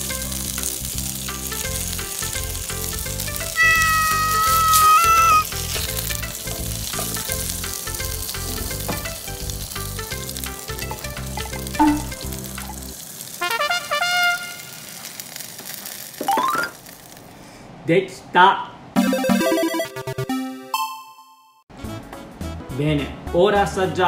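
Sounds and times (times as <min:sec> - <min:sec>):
background music: 0:00.0 - 0:14.4, 0:19.0 - 0:24.0
dumplings sizzling in hot oil: 0:00.0 - 0:17.4.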